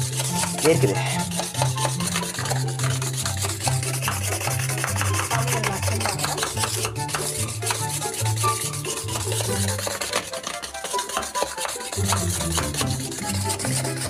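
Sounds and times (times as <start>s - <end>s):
background music with bass: 0.0s - 10.1s, 12.0s - 14.0s
mechanical whisk churning liquid: 0.0s - 14.0s.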